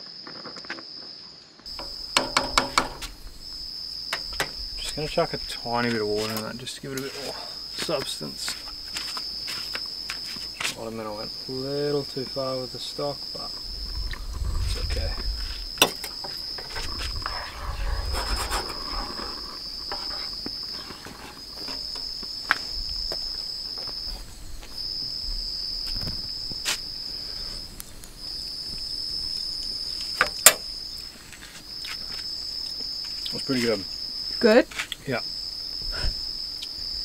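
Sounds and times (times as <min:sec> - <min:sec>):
night insects trilling: 0:00.0 - 0:37.0
cookware knocks and clinks: 0:01.8 - 0:03.1.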